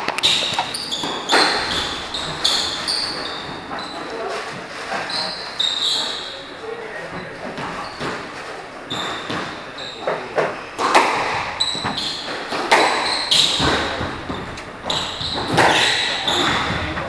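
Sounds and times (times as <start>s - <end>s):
racket hitting ball: 0.0s - 3.8s, 10.8s - 17.0s
ball hitting walls: 0.0s - 6.2s, 7.1s - 17.0s
shoes squeaking on wooden floor: 0.0s - 17.0s.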